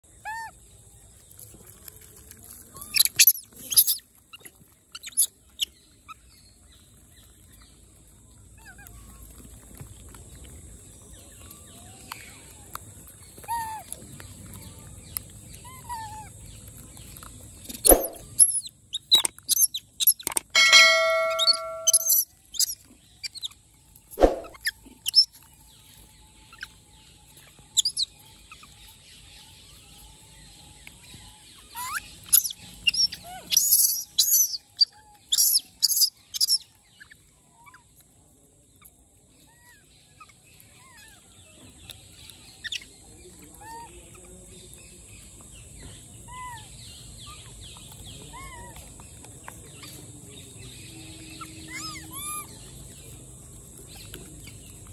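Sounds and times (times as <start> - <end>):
baby monkeys squeaking and squealing: 2.7 - 6.3, 17.7 - 23.5, 27.7 - 29.0, 31.6 - 37.9, 42.5 - 43.9, 46.2 - 49.1, 51.3 - 52.8
bird chirps: 17.7 - 18.5, 19.2 - 22.8, 24.2 - 25.2.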